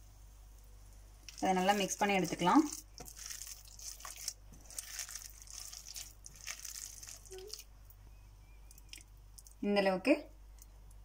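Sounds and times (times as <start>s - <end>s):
wet squishing of batter mixing: 1.2s - 9.6s.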